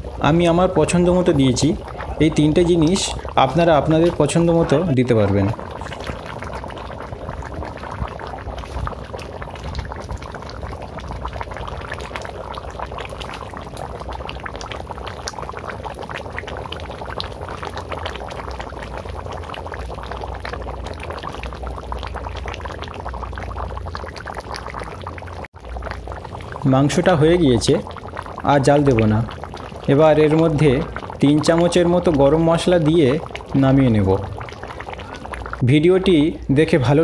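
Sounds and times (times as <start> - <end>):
thick curry bubbling: 0.0 - 37.0.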